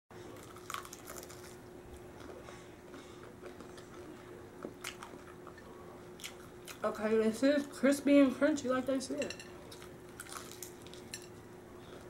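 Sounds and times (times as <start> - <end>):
faint steady hum: 0.1 - 12.0
chewing crispy chicken: 0.3 - 5.6, 6.2 - 6.8, 9.7 - 11.1.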